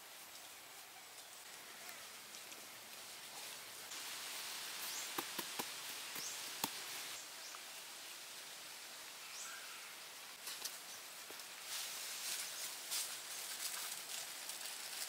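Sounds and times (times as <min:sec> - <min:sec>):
insects hissing: 0:00.0 - 0:11.0
sharp taps and clicks: 0:05.2 - 0:06.8.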